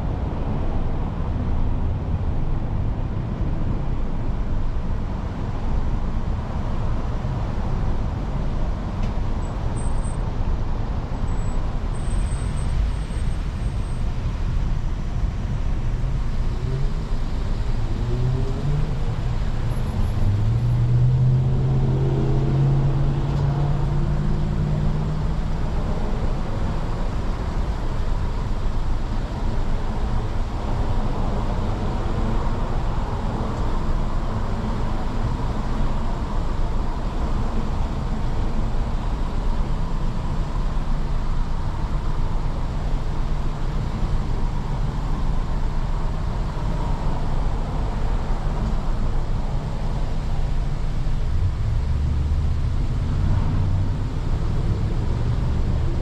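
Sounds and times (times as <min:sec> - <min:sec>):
road noise: 0:00.0 - 0:56.0
car engine accelerating: 0:16.4 - 0:26.4.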